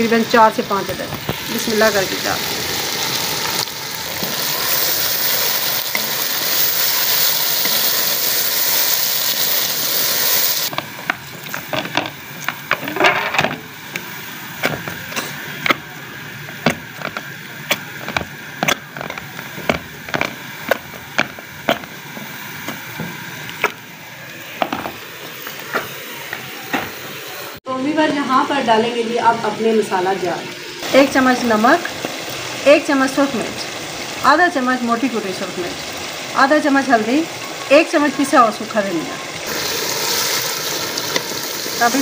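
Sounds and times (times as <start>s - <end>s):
food sizzling in a pot: 0.0s - 42.0s.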